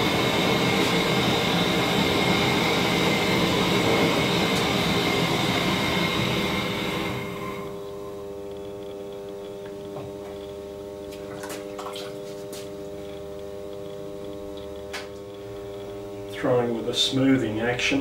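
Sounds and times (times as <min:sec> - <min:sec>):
propane torch roar: 0:00.0 - 0:11.2, 0:12.5 - 0:18.0
potter's wheel humming: 0:00.0 - 0:18.0
water drips: 0:11.0 - 0:12.3.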